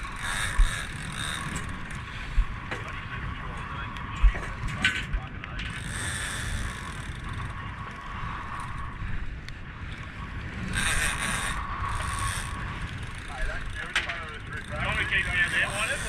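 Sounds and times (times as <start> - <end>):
fishing reel whirring: 0.0 - 2.1, 5.7 - 16.0
wind buffeting microphone: 0.0 - 16.0.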